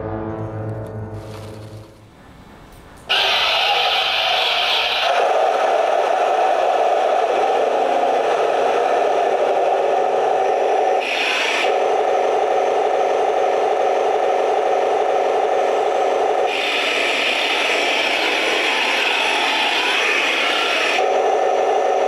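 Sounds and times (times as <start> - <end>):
toy tank tracks scraping on concrete: 1.2 - 2.1.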